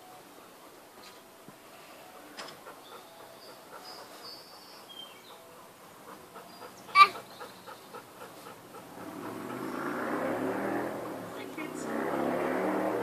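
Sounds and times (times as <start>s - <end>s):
dog panting: 2.0s - 11.6s
passing vehicles: 5.2s - 13.0s.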